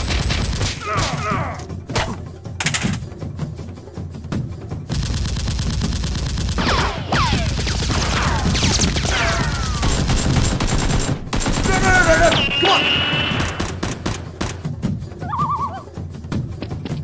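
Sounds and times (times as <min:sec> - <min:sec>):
automatic gunfire: 0:04.9 - 0:12.3, 0:13.2 - 0:14.6
falling whistles: 0:12.3 - 0:13.5
high wavering cry: 0:15.2 - 0:15.9.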